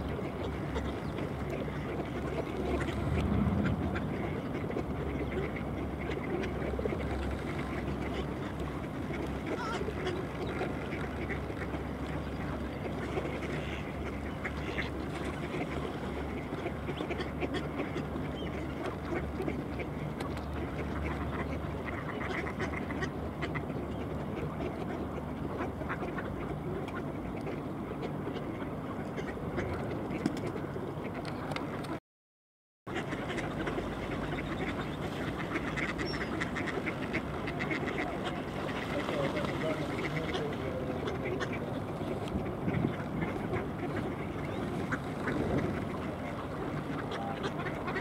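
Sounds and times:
ducks quacking: 0.0s - 32.0s, 32.9s - 48.0s
low rumble: 2.4s - 6.0s.

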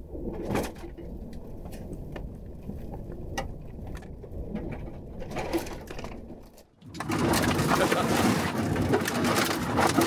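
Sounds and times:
tyres and suspension rumbling: 0.0s - 10.0s
sharp knocks and rattles: 2.9s - 10.0s.

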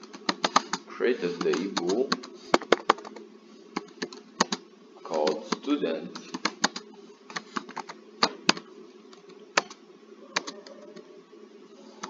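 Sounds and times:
low background hum: 0.0s - 12.0s.

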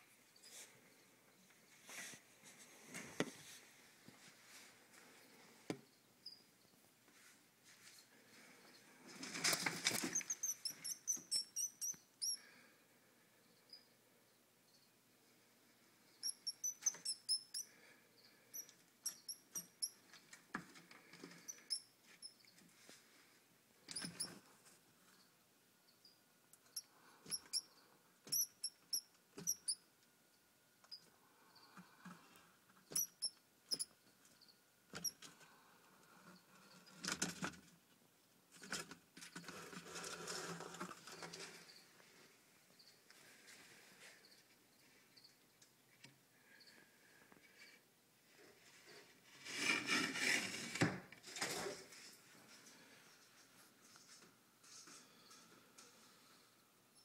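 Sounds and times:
mouse squeaking: 10.0s - 12.4s, 16.1s - 17.7s, 18.5s - 20.0s, 21.4s - 22.5s, 23.9s - 24.4s, 26.6s - 29.8s, 32.9s - 34.0s, 35.0s - 35.2s.

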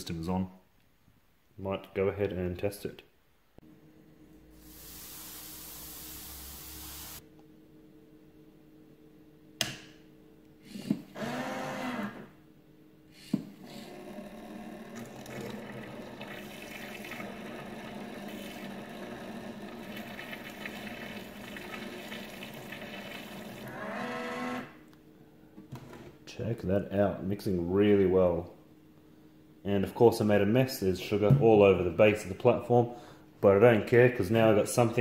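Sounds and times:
small motor stirring with rattle: 13.2s - 24.6s.

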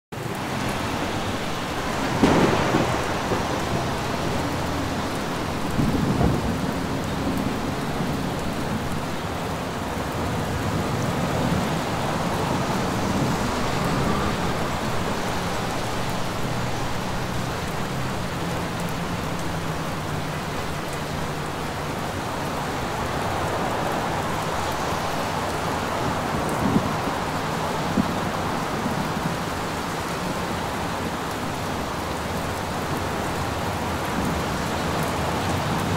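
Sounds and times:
steady rain: 0.1s - 35.9s
thunder rumbling: 0.7s - 9.5s.

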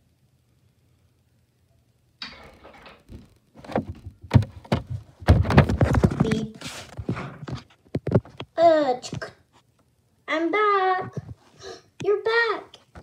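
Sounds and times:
knocks and thuds: 2.2s - 6.4s.

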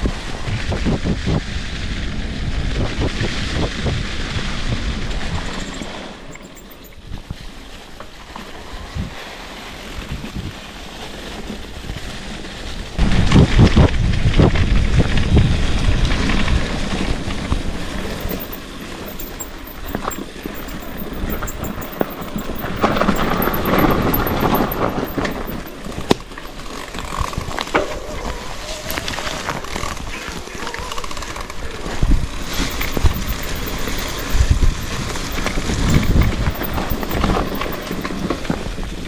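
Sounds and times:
mountain bike rattling: 4.0s - 8.7s, 14.6s - 39.0s.

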